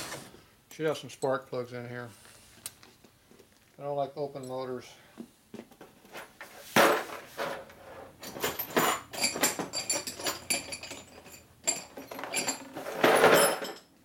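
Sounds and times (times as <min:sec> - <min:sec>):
rustling scrapes: 0:06.0 - 0:09.1
small metal parts clinking: 0:08.2 - 0:13.9.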